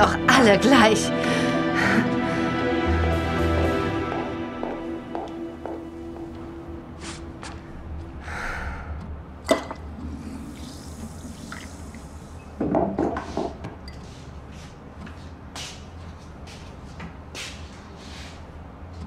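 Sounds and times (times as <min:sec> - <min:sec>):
kitchen tap running: 0:10.0 - 0:12.8.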